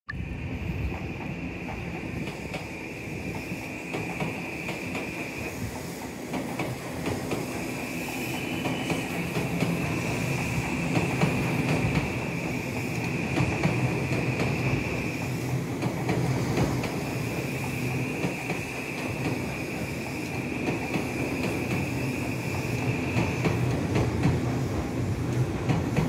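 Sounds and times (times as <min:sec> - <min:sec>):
high-pitched hiss: 0:00.4 - 0:15.6, 0:16.2 - 0:25.3
train wheels clicking over rail joints: 0:00.7 - 0:26.0.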